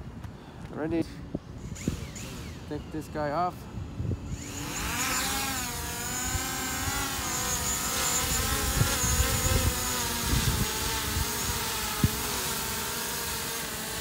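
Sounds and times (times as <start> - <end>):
drone propellers whining: 1.5 - 3.2, 3.8 - 14.0
wind buffeting microphone: 3.6 - 12.5.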